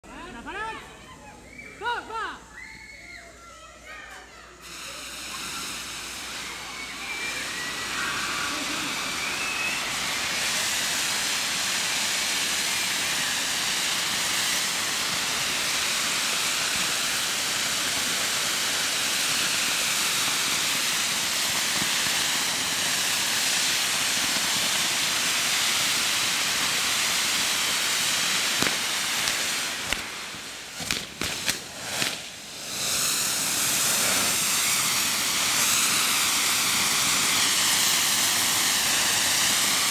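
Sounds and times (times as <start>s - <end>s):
firework fountains hissing: 0.0s - 39.9s
sharp cracks: 28.6s - 32.4s.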